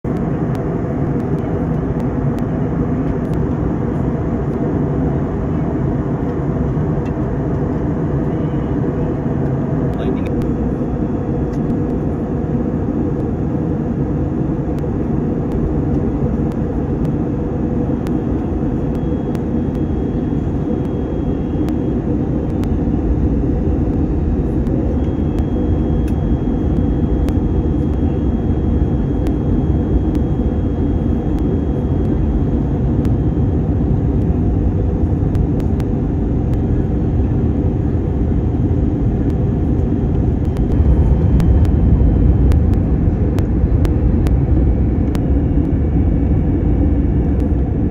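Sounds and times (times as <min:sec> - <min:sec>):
airliner cabin drone: 0:00.0 - 0:47.9.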